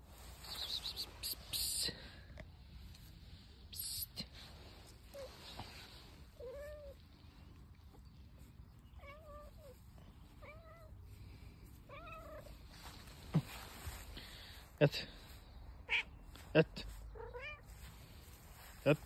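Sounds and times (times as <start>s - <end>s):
cat meowing: 9.0s - 9.8s, 10.4s - 10.9s, 11.9s - 12.6s, 15.9s - 16.2s, 17.2s - 17.7s.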